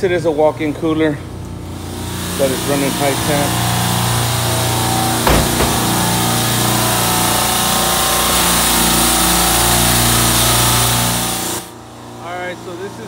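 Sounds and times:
compressors humming: 0:02.1 - 0:08.6.

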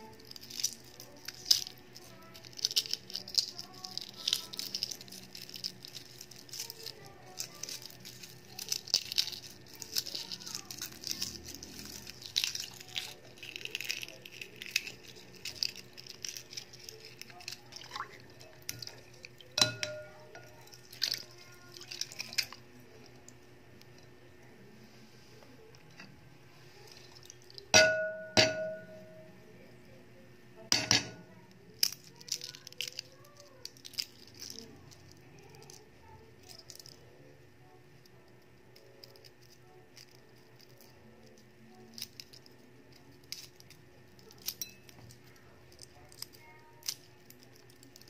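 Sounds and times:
egg shell crackling: 0:00.0 - 0:24.7, 0:25.6 - 0:29.6, 0:30.7 - 0:48.0
egg clinking on glass bowl: 0:17.4 - 0:21.2, 0:27.2 - 0:29.2.

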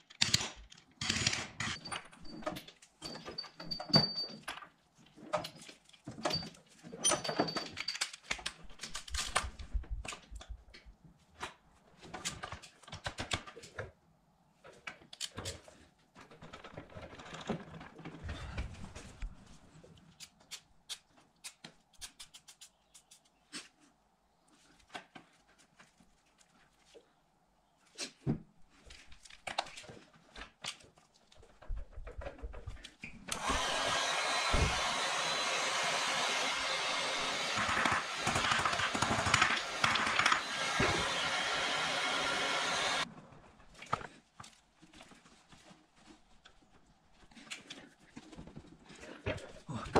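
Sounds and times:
tools clicking and knocking: 0:00.0 - 0:10.9
heat gun blowing hiss: 0:33.3 - 0:43.0.

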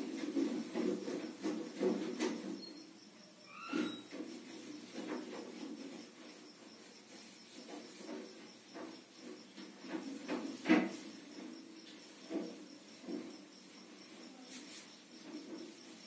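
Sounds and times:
soft rubbing: 0:12.9 - 0:16.0.

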